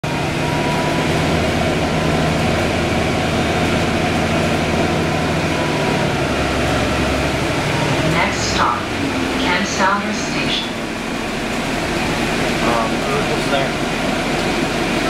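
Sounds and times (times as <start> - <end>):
bus drivetrain humming: 0.0 - 15.0
road noise: 0.0 - 15.0.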